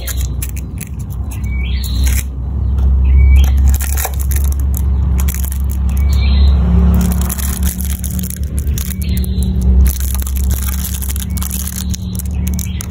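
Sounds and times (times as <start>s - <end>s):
foil and plastic bag crackling: 3.4s - 12.9s.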